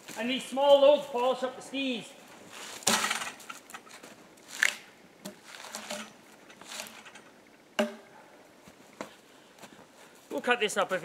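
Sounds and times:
footsteps crunching in snow: 0.0s - 1.5s.

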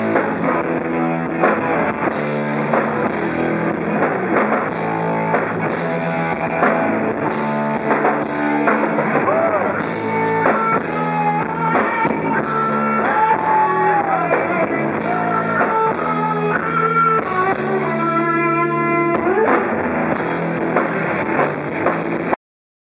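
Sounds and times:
live rock band playing: 0.0s - 22.4s.

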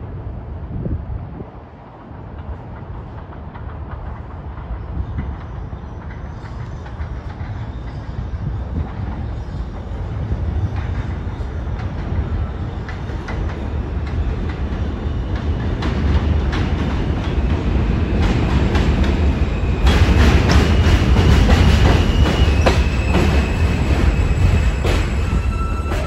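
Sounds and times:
subway train rumbling: 0.0s - 26.0s.

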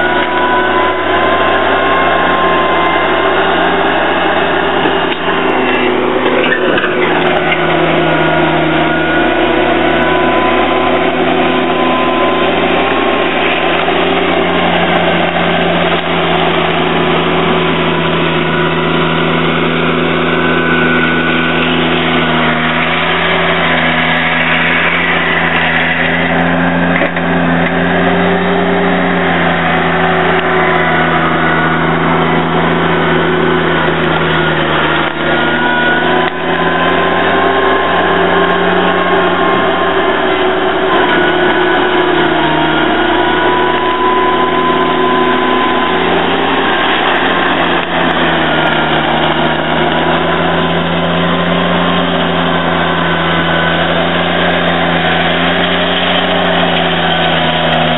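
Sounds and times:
blade pushing gravel: 0.0s - 57.9s
garden tractor engine under load: 0.0s - 57.9s.

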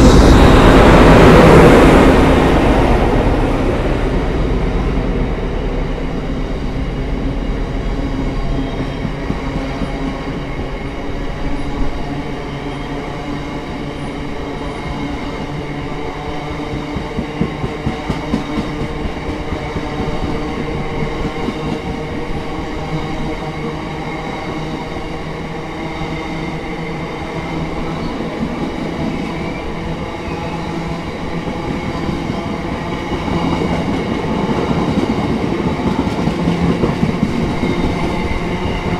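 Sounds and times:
train engine drone: 0.0s - 38.9s
clickety-clack of wheels on rail joints: 8.0s - 10.9s, 16.4s - 22.6s, 27.5s - 38.9s.

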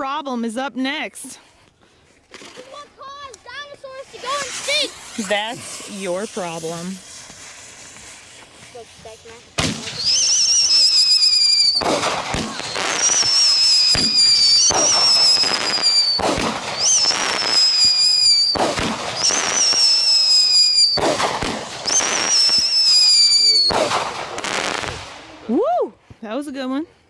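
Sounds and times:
firework whistling: 3.5s - 25.9s
firework bang: 4.1s - 25.4s.

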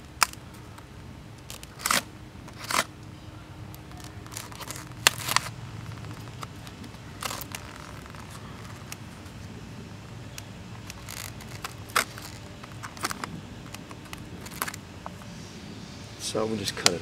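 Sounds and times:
blade cutting tape and plastic: 1.4s - 2.9s, 3.9s - 9.0s, 10.8s - 14.8s.

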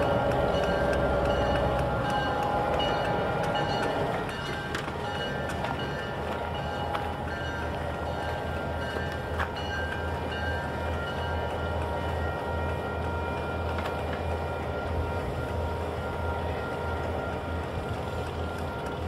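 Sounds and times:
diesel locomotive rumble: 0.0s - 19.0s.

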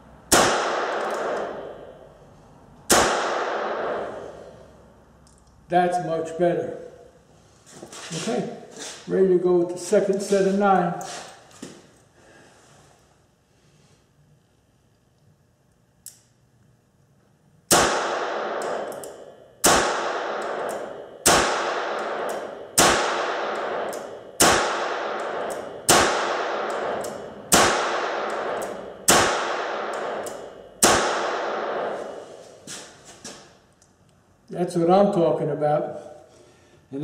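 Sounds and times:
revolver shots echoing: 0.3s - 2.2s, 2.9s - 4.5s, 17.7s - 32.3s.

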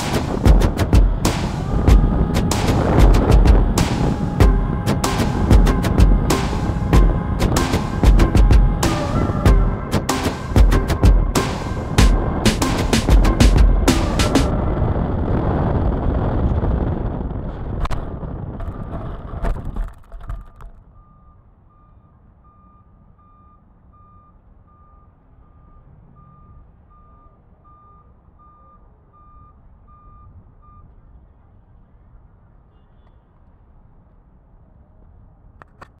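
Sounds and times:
plane knocking on touchdown: 0.0s - 14.5s
electric motor and propeller: 0.0s - 16.6s
air rushing over camera: 0.0s - 19.9s
faint high electronic beep: 20.5s - 30.9s.

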